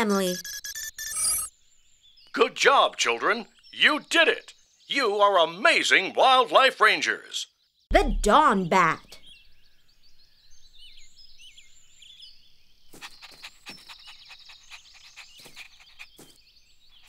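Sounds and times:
small birds chirping: 0:00.0 - 0:17.0
high bird trill: 0:07.0 - 0:17.0.

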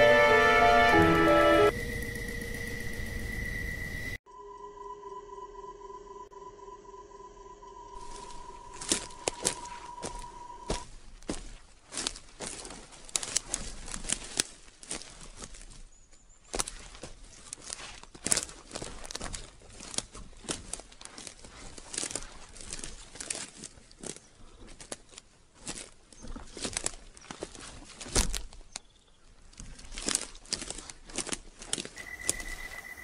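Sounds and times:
footsteps on gravel: 0:08.0 - 0:28.7, 0:29.5 - 0:32.9.

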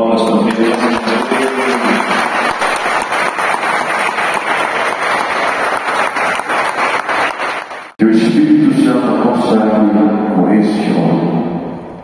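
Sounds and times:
man speaking over a microphone: 0:00.0 - 0:02.3, 0:08.0 - 0:11.5
congregation applauding: 0:00.0 - 0:08.0.

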